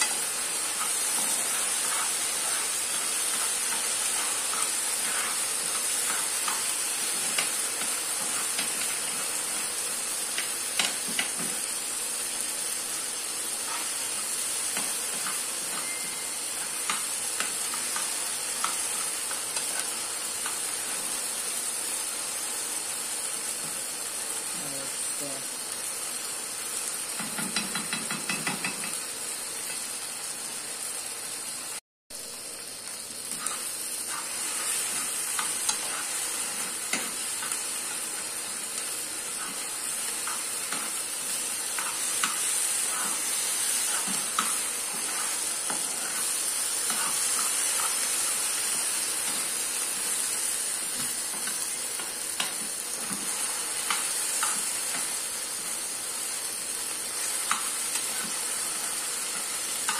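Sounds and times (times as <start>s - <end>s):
rice sizzling in a pan: 0.0s - 59.9s
metal spoon scraping a pan: 33.3s - 38.2s.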